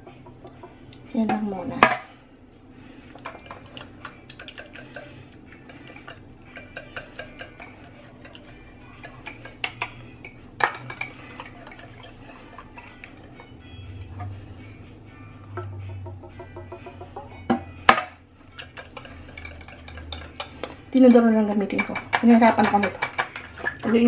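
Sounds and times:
whisk clinking against glass bowl: 0:03.3 - 0:13.3, 0:18.4 - 0:24.0.

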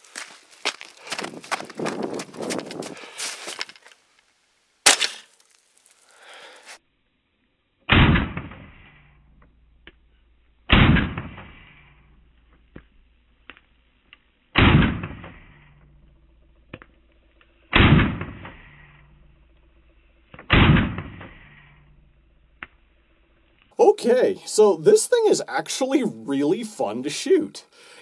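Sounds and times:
rifle shots: 0:20.5 - 0:21.4.

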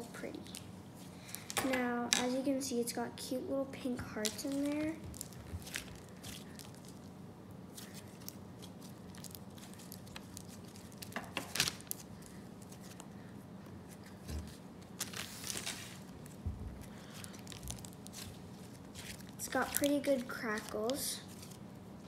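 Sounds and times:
slime squishing and crackling: 0:03.8 - 0:13.2, 0:13.9 - 0:21.7.

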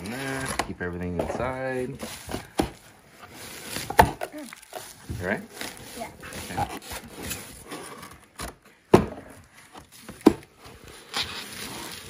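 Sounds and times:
bubble wrap and cardboard rustling: 0:00.0 - 0:12.0
cardboard boxes bumping: 0:03.7 - 0:10.7.

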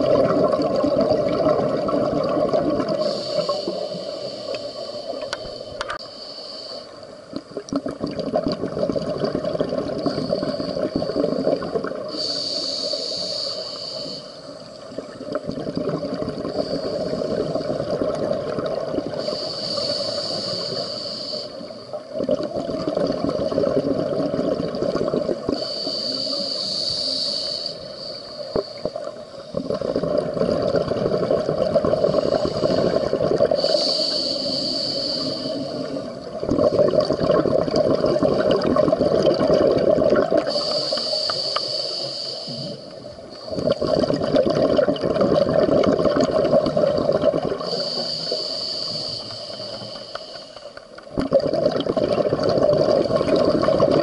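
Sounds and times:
exhaled air bubbling underwater: 0:00.0 - 0:54.0
scuba regulator inhale hiss: 0:02.9 - 0:07.3, 0:10.0 - 0:14.8, 0:16.1 - 0:17.7, 0:19.1 - 0:22.0, 0:25.4 - 0:29.6, 0:31.9 - 0:37.0, 0:40.4 - 0:44.0, 0:47.6 - 0:51.0.

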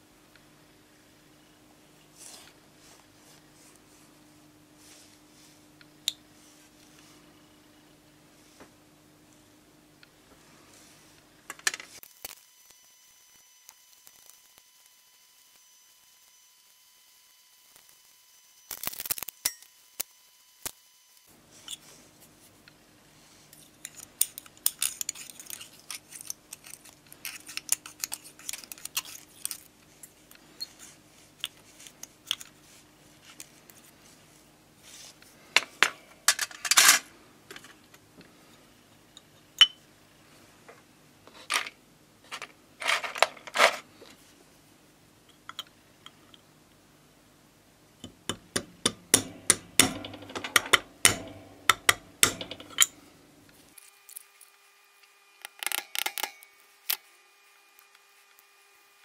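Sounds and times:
metal clicks and scrapes of tools: 0:21.6 - 0:21.8, 0:23.5 - 0:32.6, 0:49.8 - 0:53.0, 0:53.7 - 0:57.0.

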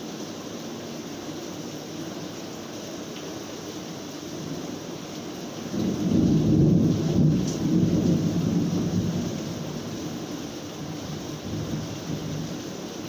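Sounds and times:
steady rain: 0:00.0 - 0:13.0
thunder rumbling: 0:05.7 - 0:10.0.

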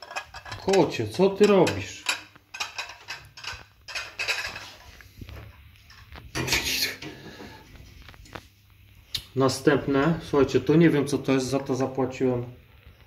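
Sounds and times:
porcelain cups clinking: 0:00.0 - 0:05.0.

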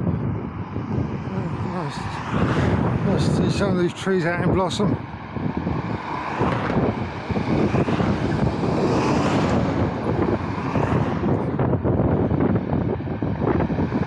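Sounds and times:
vehicle and road noise: 0:00.0 - 0:14.0
wind buffeting microphone: 0:00.0 - 0:14.0.

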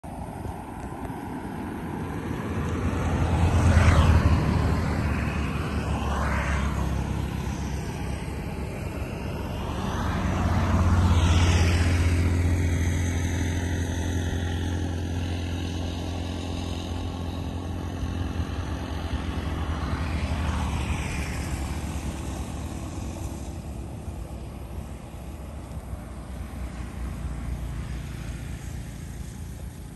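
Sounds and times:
low engine hum: 0:00.0 - 0:29.9
vehicles passing by: 0:00.0 - 0:29.9.

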